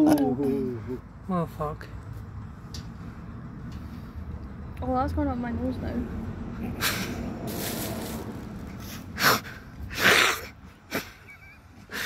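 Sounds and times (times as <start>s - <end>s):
woman sniffing and breathing hard: 6.7s - 11.2s, 11.8s - 12.0s.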